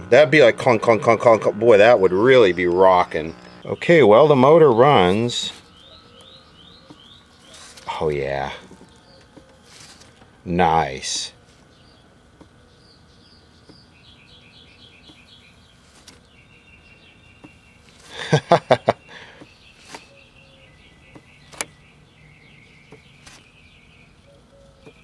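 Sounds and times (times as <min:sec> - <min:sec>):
birds chirping: 0:00.0 - 0:25.0.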